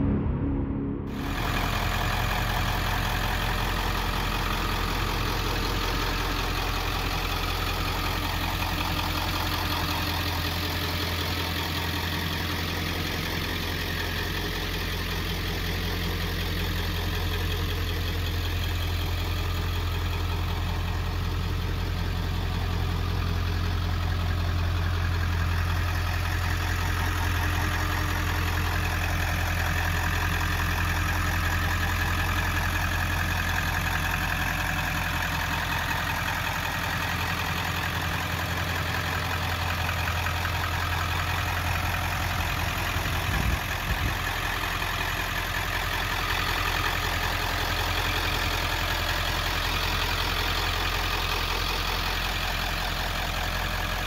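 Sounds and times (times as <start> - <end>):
diesel truck engine idling: 1.1 - 54.0.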